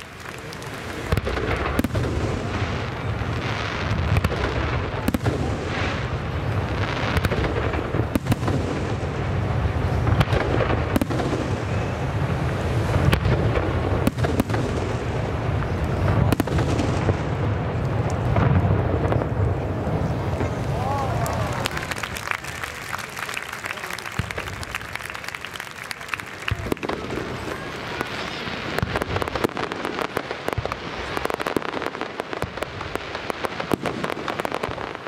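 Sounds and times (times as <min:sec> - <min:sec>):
fireworks bursting: 0:00.0 - 0:35.0.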